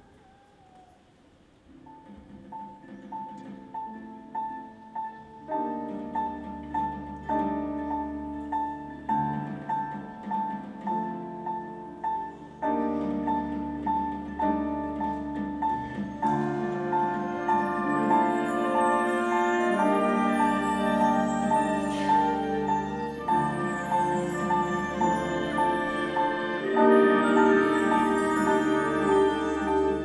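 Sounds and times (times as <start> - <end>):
chamber ensemble playing slowly: 3.2 - 30.0.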